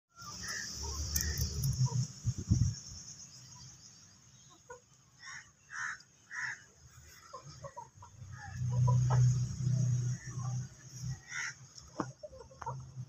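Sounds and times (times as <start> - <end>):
chickens clucking: 3.6 - 13.0.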